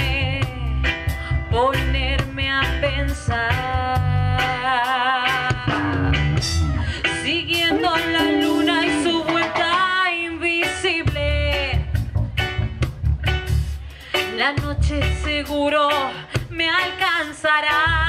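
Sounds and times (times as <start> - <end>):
electric bass: 0.0 - 9.4, 10.8 - 14.0, 14.6 - 15.8
drums: 0.0 - 18.0
woman singing with vibrato: 7.2 - 11.7.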